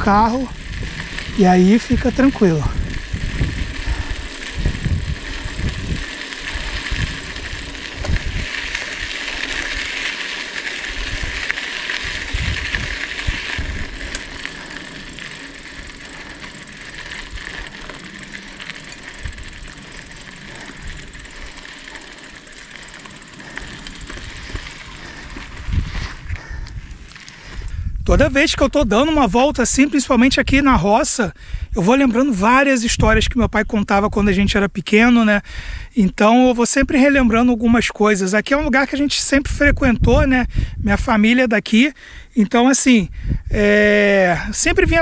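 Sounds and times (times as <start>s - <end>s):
bike tyres crunching on dirt: 0.0s - 30.6s
wind buffeting microphone: 0.0s - 32.1s, 32.9s - 34.6s, 39.4s - 41.2s, 43.0s - 45.0s
bike rattling clicks: 0.5s - 27.8s.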